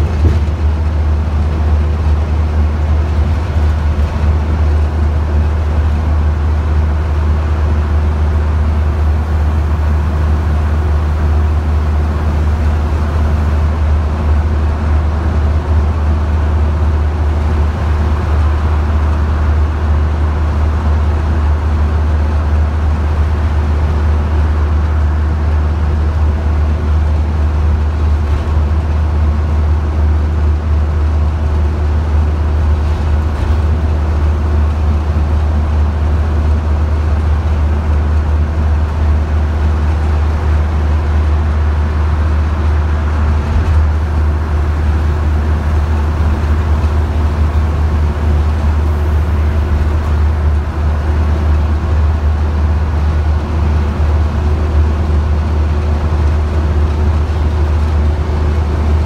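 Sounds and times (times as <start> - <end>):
bus engine drone: 0.0 - 59.0
road and tyre noise: 0.0 - 59.0.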